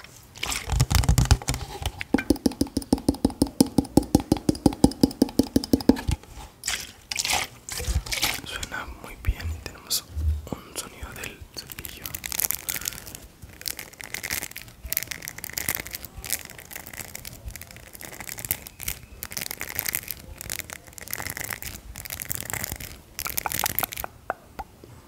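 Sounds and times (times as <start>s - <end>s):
quick sharp clicks: 2.1s - 6.2s.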